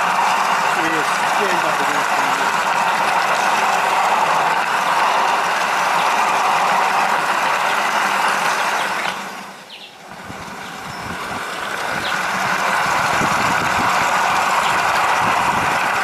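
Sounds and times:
model train running on rails: 0:00.0 - 0:16.0.

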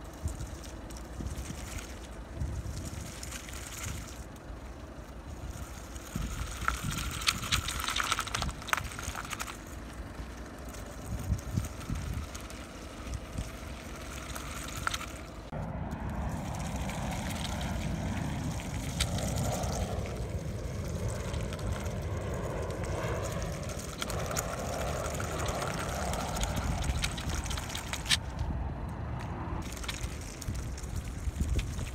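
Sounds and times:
wind noise on microphone: 0:00.0 - 0:31.9.

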